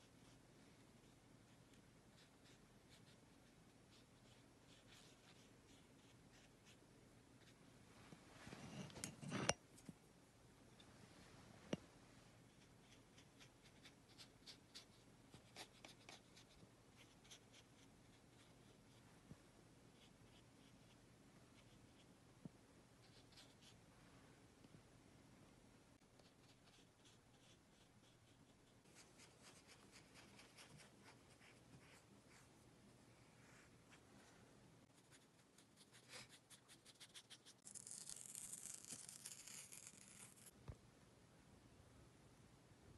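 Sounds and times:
paintbrush scratching strokes: 0.0 - 6.8.

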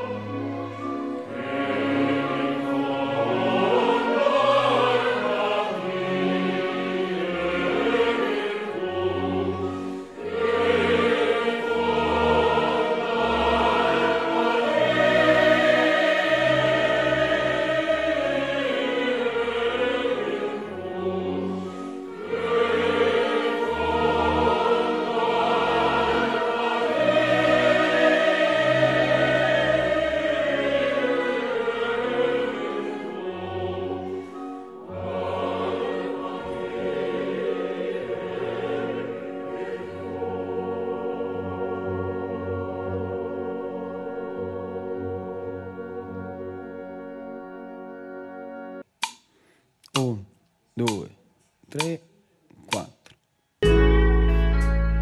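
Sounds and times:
choir singing: 0.0 - 48.9
instrumental accompaniment: 53.6 - 55.0.

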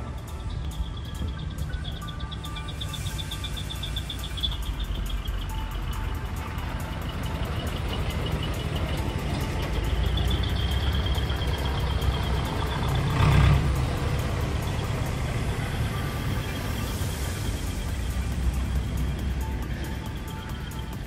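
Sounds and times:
steady high beep: 0.0 - 12.8
truck engines running: 0.0 - 21.0.

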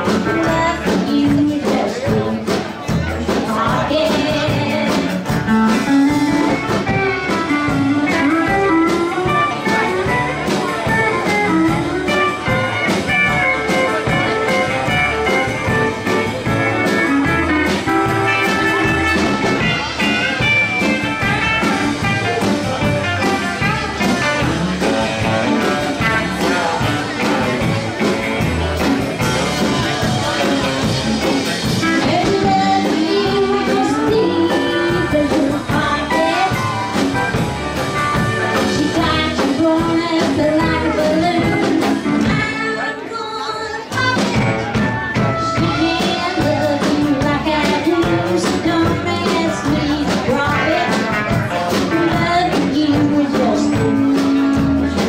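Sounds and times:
woman singing: 0.0 - 2.5, 3.3 - 6.2, 31.8 - 37.0, 38.6 - 44.6, 45.4 - 54.6
live country band playing: 0.0 - 55.0.

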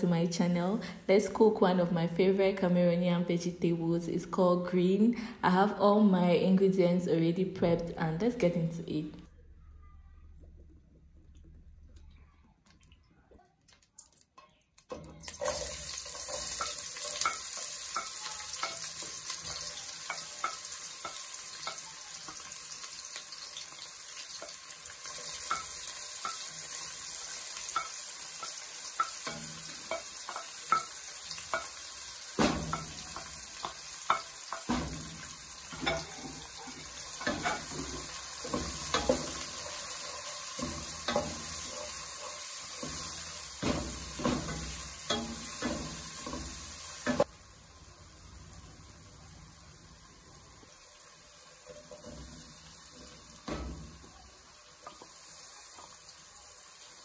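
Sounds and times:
vegetables sizzling in oil: 15.0 - 57.0
spoon knocking against pot: 32.4 - 39.6.

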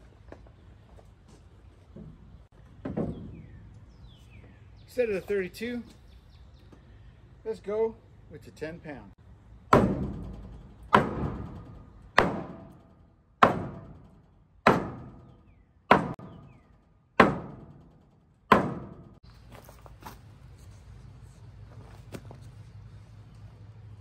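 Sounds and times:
sledgehammer striking wooden boards: 9.7 - 19.2.

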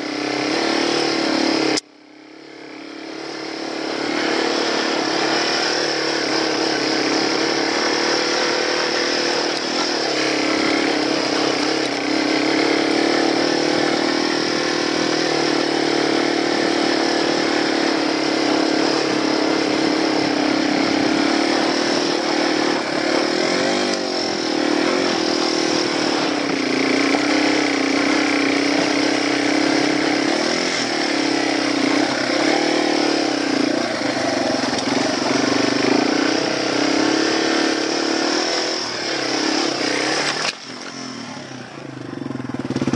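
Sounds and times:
motorcycle engine under load: 0.0 - 42.9.

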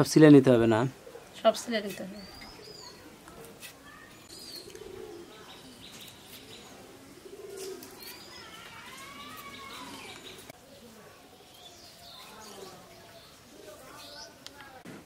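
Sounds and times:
birds chirping and whistling: 2.2 - 3.1, 3.8 - 10.5.

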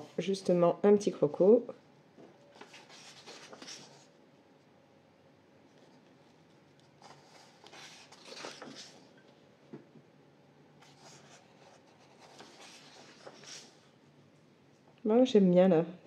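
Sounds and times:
paper page rustling: 2.6 - 4.1, 7.0 - 9.2, 10.8 - 13.9.

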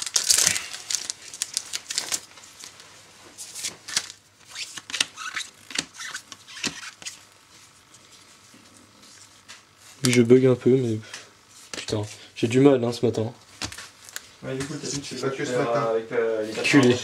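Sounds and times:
foil wrapper crinkling: 0.0 - 10.3, 13.6 - 14.3.

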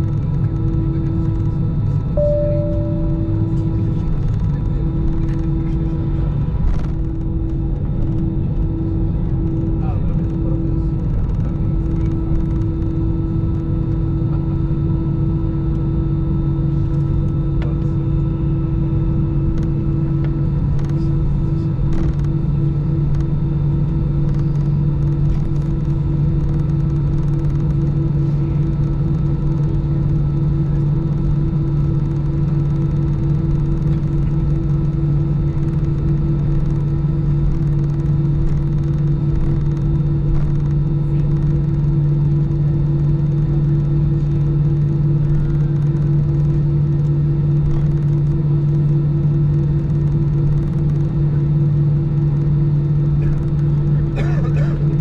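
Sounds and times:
airliner cabin hum: 0.0 - 55.0.

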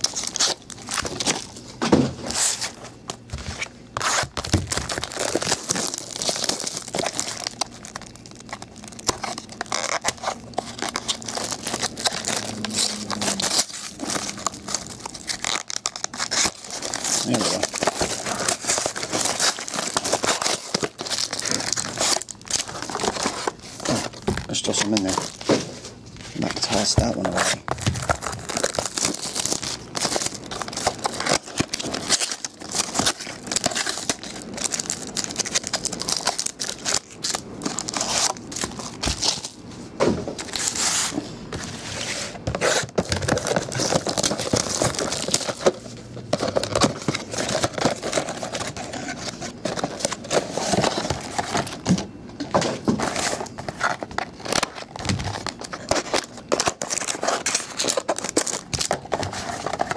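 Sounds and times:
foil wrappers crinkling and tearing: 0.0 - 39.6, 40.4 - 59.9.

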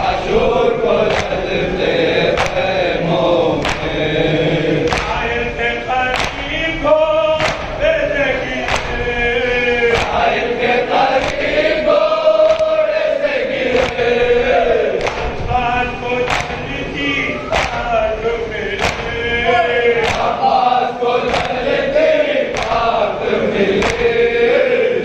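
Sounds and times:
men chanting in unison: 0.0 - 25.0
hands slapping on chests: 1.1 - 1.4, 2.3 - 2.7, 3.6 - 4.0, 4.8 - 5.2, 6.1 - 6.5, 7.4 - 7.8, 8.7 - 9.0, 9.9 - 10.2, 11.1 - 11.6, 12.4 - 12.8, 13.7 - 14.1, 15.0 - 15.4, 16.3 - 16.7, 17.5 - 17.9, 18.8 - 19.2, 20.0 - 20.4, 21.2 - 21.7, 22.5 - 22.9, 23.8 - 24.1.

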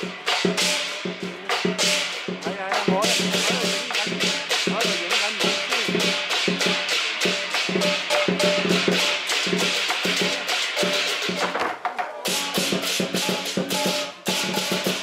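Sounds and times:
cymbals clashing: 0.0 - 15.0
large drum beating: 0.0 - 15.0.

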